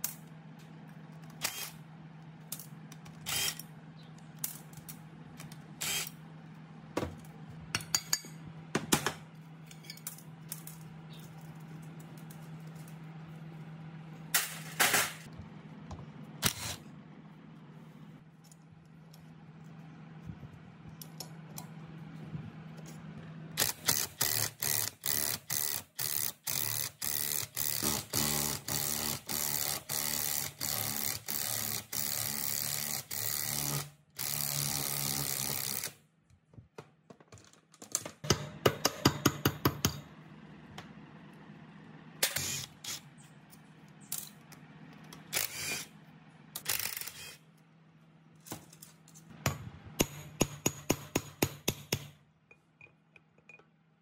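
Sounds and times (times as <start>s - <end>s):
impact wrench running: 3.2s - 3.7s, 5.8s - 6.2s, 23.6s - 36.0s, 45.3s - 45.9s
sharp metal knocks and taps: 38.2s - 40.0s, 49.4s - 53.7s
impact wrench hammering: 38.2s - 40.1s, 49.3s - 52.2s.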